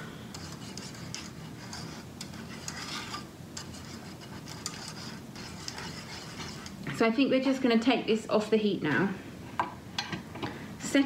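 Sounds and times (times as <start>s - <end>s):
metal whisk scraping saucepan: 0.3s - 6.8s.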